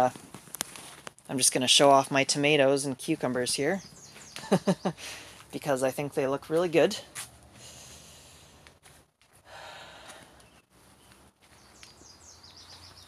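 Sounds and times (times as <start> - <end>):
soft breathing: 7.5 - 10.6.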